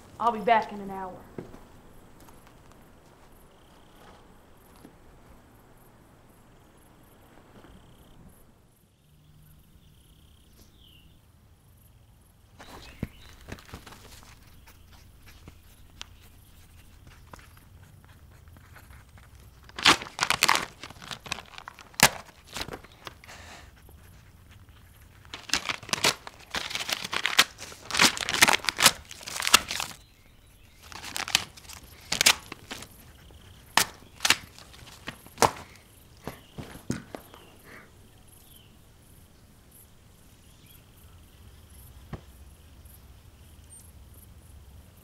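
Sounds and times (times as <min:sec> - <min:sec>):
paper tearing and crumpling: 0:18.6 - 0:23.2, 0:25.1 - 0:30.0, 0:30.8 - 0:35.8.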